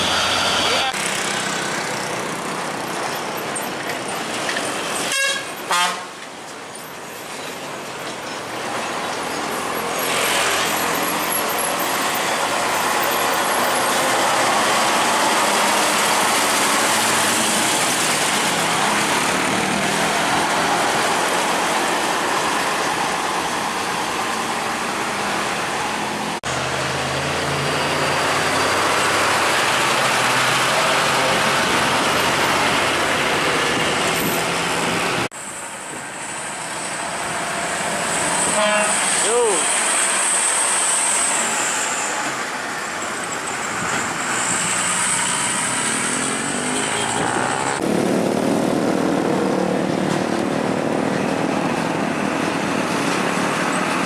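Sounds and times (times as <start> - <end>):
diesel trucks passing: 0.0 - 54.0
truck horn blast: 5.1 - 6.1, 38.5 - 39.3.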